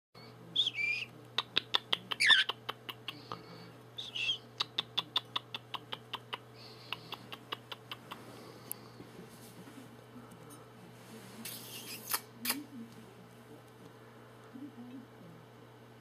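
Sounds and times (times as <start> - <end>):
budgerigar chirps: 1.7 - 2.6.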